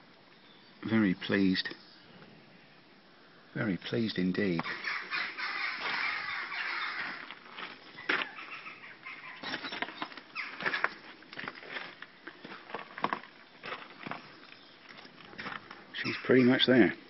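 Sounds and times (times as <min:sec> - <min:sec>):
footsteps on gravel: 0:07.0 - 0:08.4, 0:09.4 - 0:15.9.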